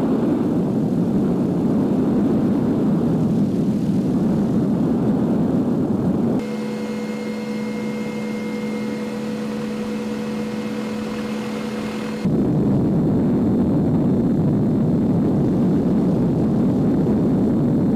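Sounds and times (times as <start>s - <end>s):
helicopter rotor and engine rumble: 2.6s - 17.9s
cockpit humming drone: 4.1s - 17.9s.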